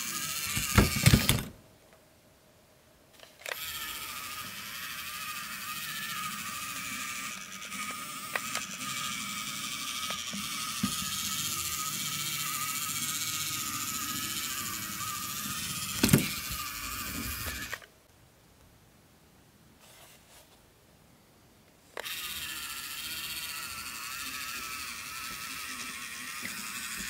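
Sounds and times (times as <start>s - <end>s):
electric motor whine: 3.5s - 17.8s, 22.0s - 27.0s.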